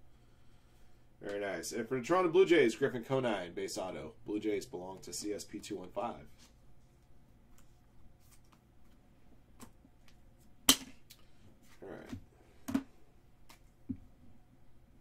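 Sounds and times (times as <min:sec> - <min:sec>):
cards sliding rustle: 0:06.3 - 0:09.0.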